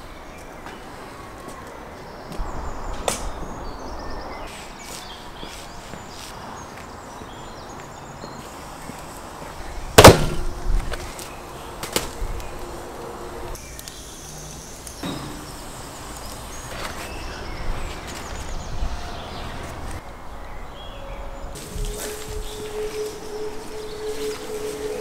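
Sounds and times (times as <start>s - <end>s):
loud sharp thud: 10.0s - 10.6s.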